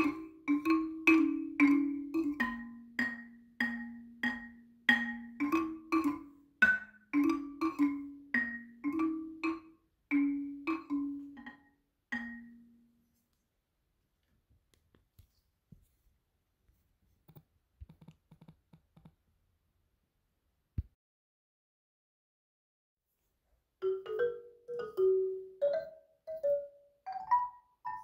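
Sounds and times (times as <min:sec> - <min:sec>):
marimba-like mallet melody: 0:00.0 - 0:12.9, 0:23.8 - 0:28.0.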